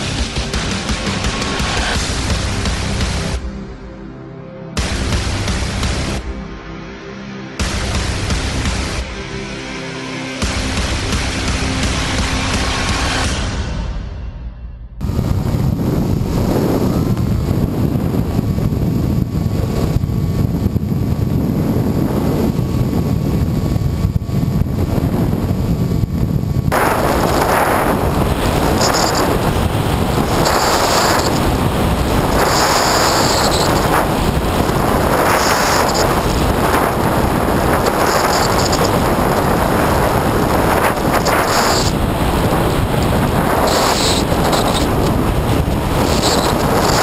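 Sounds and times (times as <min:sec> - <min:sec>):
electric motor and propeller drone: 0:15.0 - 0:47.0
wind rushing over camera: 0:15.0 - 0:47.0.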